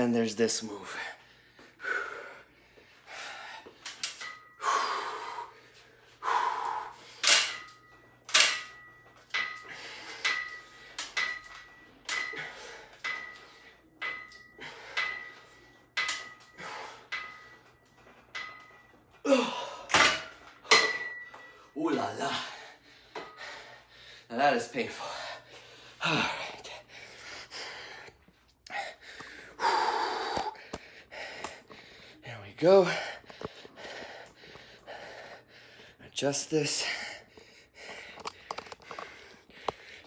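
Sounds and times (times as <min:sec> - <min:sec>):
heavy breathing: 0:00.8 - 0:07.7, 0:09.5 - 0:17.8, 0:21.4 - 0:40.0
weight stack clanking: 0:07.2 - 0:21.6.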